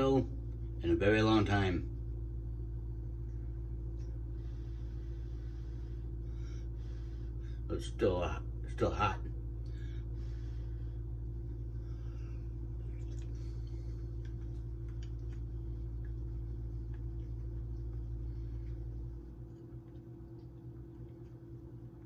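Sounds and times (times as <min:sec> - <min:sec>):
steady low hum: 0:00.0 - 0:22.0
soft chewing: 0:02.8 - 0:07.4, 0:09.5 - 0:22.0.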